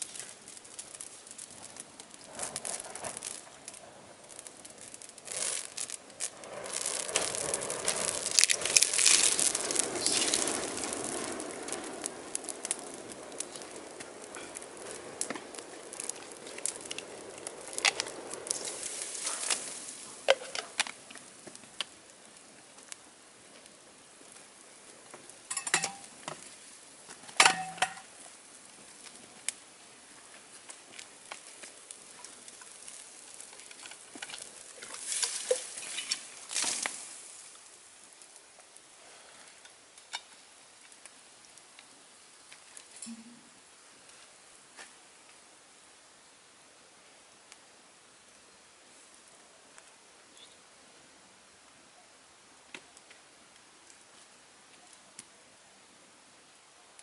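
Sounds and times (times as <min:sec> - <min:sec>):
wood fire crackling: 0:00.0 - 0:57.0.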